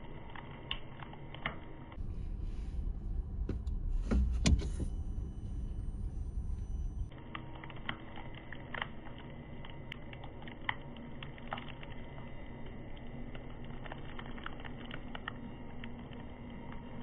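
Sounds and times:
low rumble: 2.0s - 7.2s.

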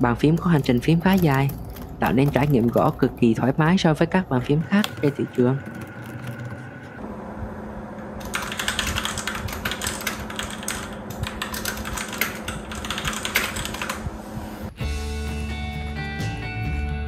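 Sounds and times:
mechanical keyboard typing: 0.0s - 3.7s, 4.7s - 6.7s, 8.2s - 14.1s
steady low hum: 0.0s - 14.8s.

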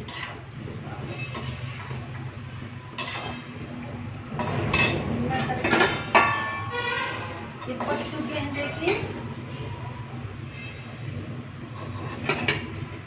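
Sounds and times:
oil frying sizzle: 0.0s - 13.0s
metal spoon clinking on steel pan: 1.2s - 1.6s, 2.9s - 3.4s.

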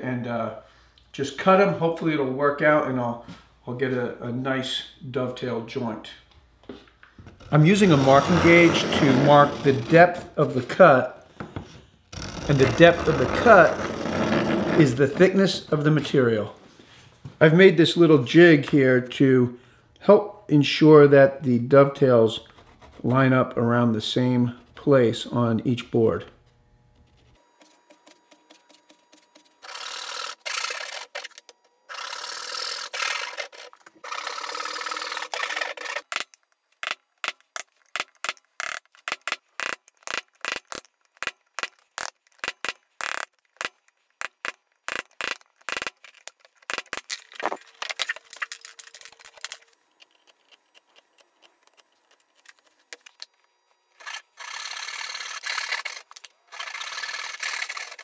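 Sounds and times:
hand saw rasping through wood: 7.8s - 10.2s, 29.6s - 36.0s.

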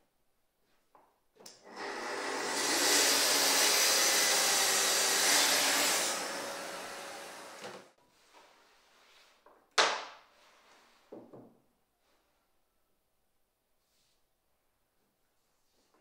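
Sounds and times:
saw blade winding down: 1.6s - 7.9s
circular saw cutting wood: 1.6s - 8.0s.

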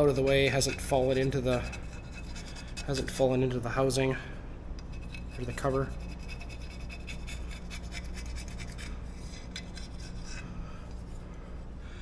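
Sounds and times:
razor blade scraping gasket: 0.0s - 3.1s, 4.8s - 10.5s.

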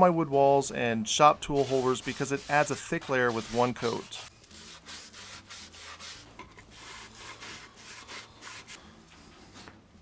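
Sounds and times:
cloth rag wiping wood: 1.4s - 8.8s.

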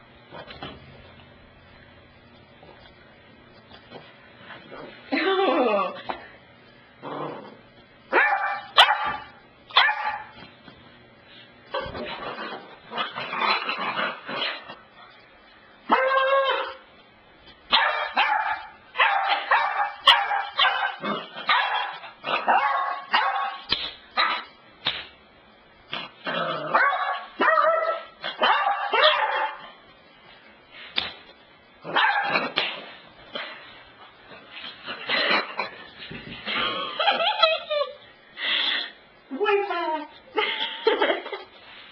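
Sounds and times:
puppy barking and yipping: 8.2s - 10.3s, 17.7s - 24.5s, 26.7s - 29.6s.

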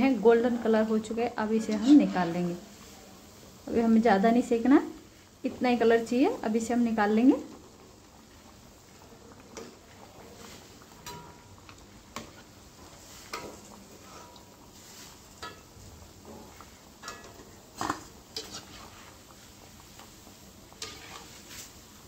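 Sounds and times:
oil sizzling: 0.0s - 22.0s
metal spoon clinking on wok: 15.4s - 15.7s, 17.0s - 17.4s.

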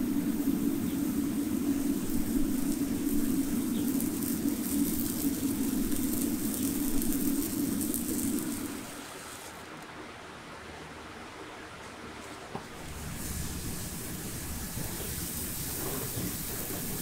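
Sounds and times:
steady low hum: 0.0s - 9.2s
hoof sizzling and crackling: 0.0s - 9.8s, 12.6s - 17.0s.

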